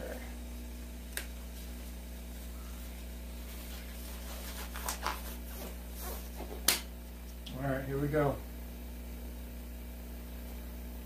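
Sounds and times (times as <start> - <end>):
glove snap: 1.1 - 1.4, 6.6 - 7.6
rubbery glove rustles: 1.5 - 6.6.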